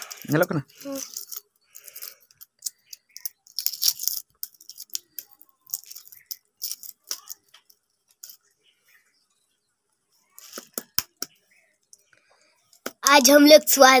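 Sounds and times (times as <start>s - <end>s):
egg shell cracking: 1.0s - 8.4s.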